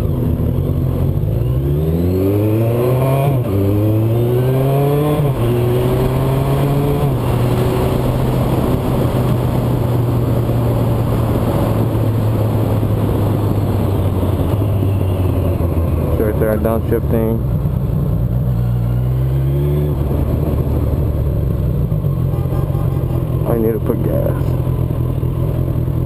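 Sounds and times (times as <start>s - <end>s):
motorcycle engine accelerating: 0.0s - 26.0s
wind rush over microphone: 3.1s - 18.6s.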